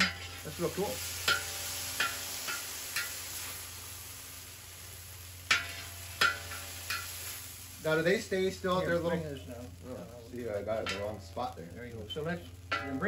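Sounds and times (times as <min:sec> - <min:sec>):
metal spatula scraping a pan: 0:00.0 - 0:03.6, 0:05.5 - 0:07.2
beef sizzling in a wok: 0:00.0 - 0:13.0.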